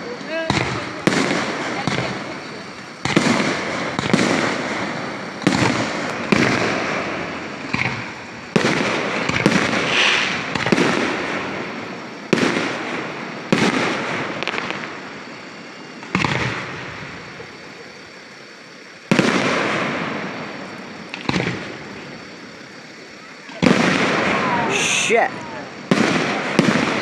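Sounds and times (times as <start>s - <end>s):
firework shells booming: 0.0s - 27.0s.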